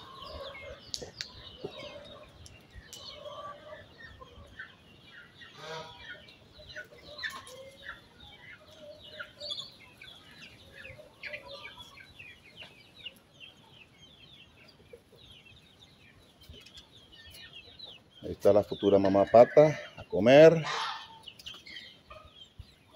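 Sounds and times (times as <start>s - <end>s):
chickens clucking: 0.0s - 22.9s
loud chicken call: 5.5s - 6.2s, 20.5s - 21.3s.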